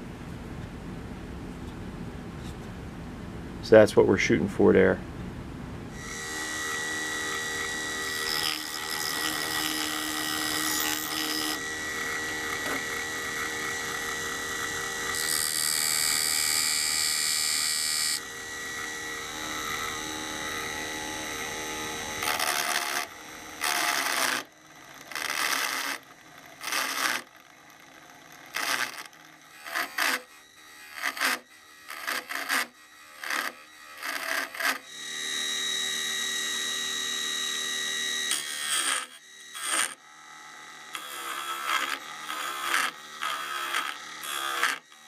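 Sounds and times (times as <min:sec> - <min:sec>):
lathe motor running: 0:06.0 - 0:45.0
file rasping on wood: 0:06.1 - 0:18.2, 0:21.8 - 0:27.3, 0:28.4 - 0:34.9, 0:38.3 - 0:40.0, 0:40.9 - 0:45.0.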